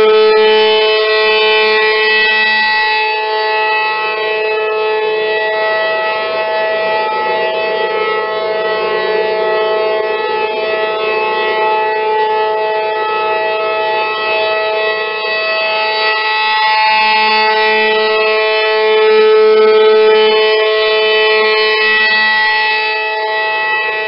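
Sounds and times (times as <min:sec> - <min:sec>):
tornado warning siren: 0:00.0 - 0:24.0.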